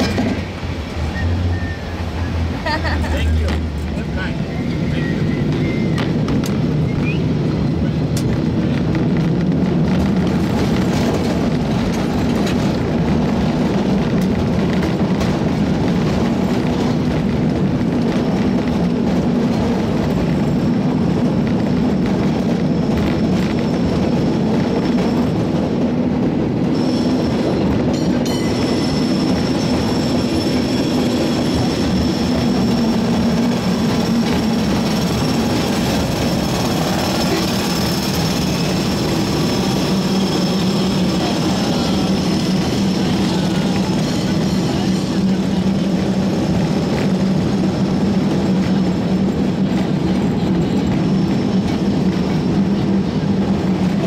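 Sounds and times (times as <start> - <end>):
cable car wheels rumbling: 0.0 - 54.0
high metallic squeal: 1.1 - 2.3, 26.7 - 45.5.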